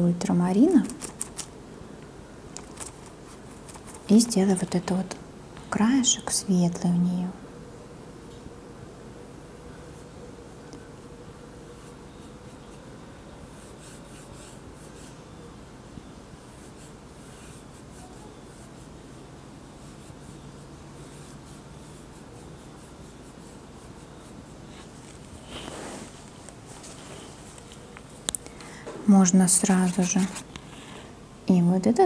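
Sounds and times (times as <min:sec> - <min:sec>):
low background hum: 0:00.0 - 0:32.0
paintbrush swishing on canvas: 0:22.8 - 0:28.2, 0:29.6 - 0:30.5.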